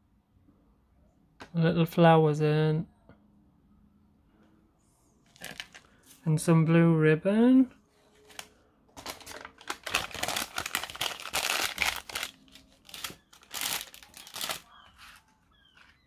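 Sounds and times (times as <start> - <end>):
paper wrapping crinkling: 5.3 - 6.0, 8.0 - 16.0.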